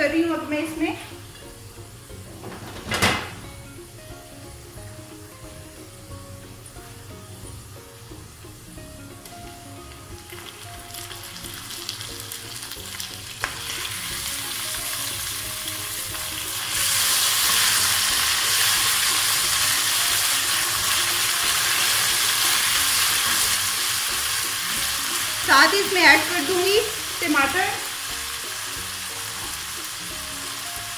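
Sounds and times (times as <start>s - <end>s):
meat sizzling in oil: 3.4s - 30.9s.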